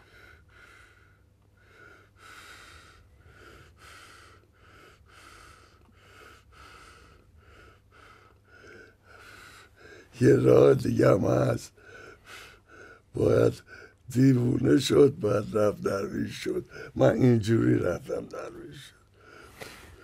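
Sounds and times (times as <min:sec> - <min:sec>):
man breathing quickly: 0:00.0 - 0:10.2, 0:11.7 - 0:14.0, 0:19.1 - 0:20.0.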